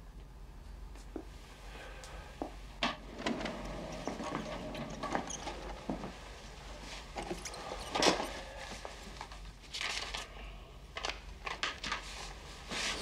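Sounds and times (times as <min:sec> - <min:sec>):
faint room hum: 0:00.0 - 0:13.0
man breathing heavily: 0:01.6 - 0:02.5, 0:07.3 - 0:09.2.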